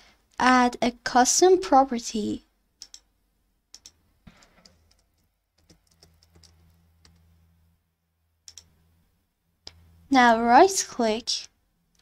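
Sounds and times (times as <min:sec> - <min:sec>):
faint low hum: 0:02.4 - 0:12.0
keyboard typing: 0:02.8 - 0:03.1, 0:03.7 - 0:07.3, 0:08.4 - 0:08.8
mouse clicks: 0:02.8 - 0:03.1, 0:03.7 - 0:05.0, 0:08.5 - 0:08.7.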